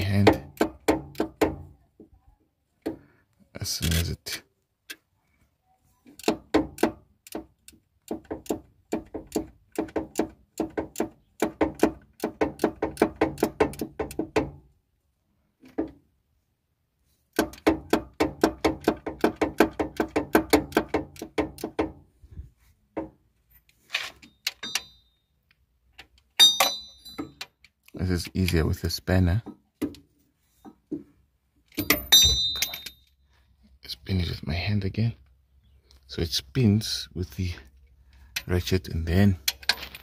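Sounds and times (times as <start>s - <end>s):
short high metallic ring: 24.4s - 25.3s, 26.4s - 27.4s, 31.8s - 33.1s.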